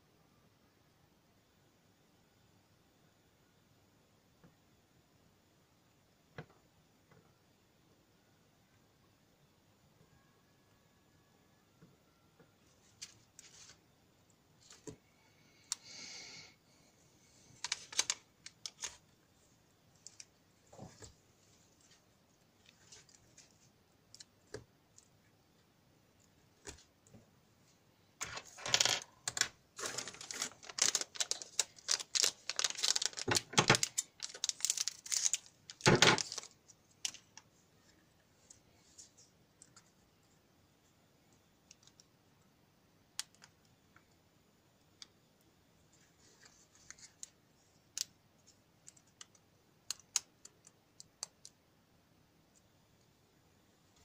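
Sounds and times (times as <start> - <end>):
rustling of paper: 12.7 - 13.8, 17.3 - 19.1, 20.0 - 24.6, 28.2 - 39.9, 45.9 - 47.4
clicks and rattles of small parts: 28.2 - 37.4.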